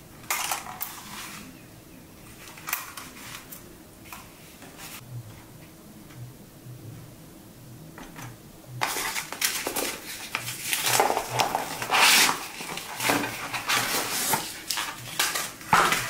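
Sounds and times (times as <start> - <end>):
cardboard tray scraping and rubbing: 9.8 - 14.6.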